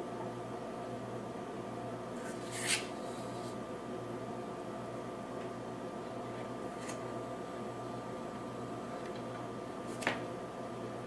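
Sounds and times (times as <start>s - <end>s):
steady electrical hum: 0.0s - 11.0s.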